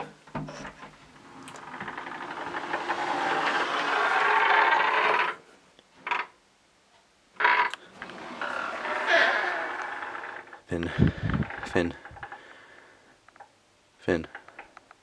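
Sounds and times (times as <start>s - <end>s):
door creaking open: 0.0s - 5.4s, 6.0s - 6.4s, 7.4s - 12.5s.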